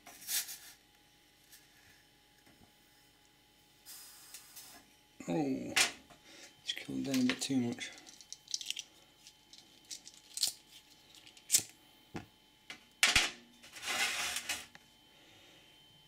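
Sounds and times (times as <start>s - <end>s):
alcohol stove hissing: 0.0s - 0.9s, 3.0s - 4.9s.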